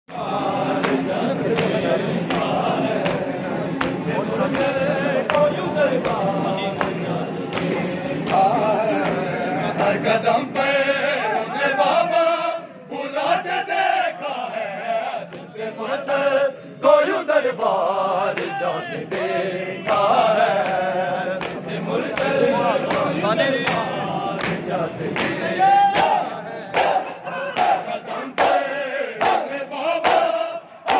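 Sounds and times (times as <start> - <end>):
men chanting a lament: 0.1 - 30.9
hands slapping chests: 0.8 - 9.2.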